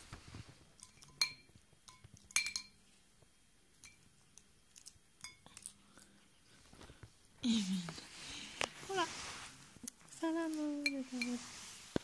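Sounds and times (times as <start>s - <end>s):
glass bowl clinking: 0.8s - 2.8s, 5.2s - 5.5s.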